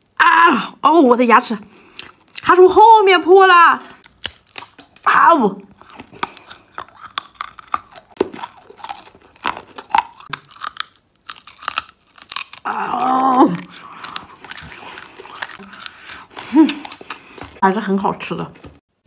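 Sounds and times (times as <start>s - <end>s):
hard candy crunching: 4.0s - 17.6s.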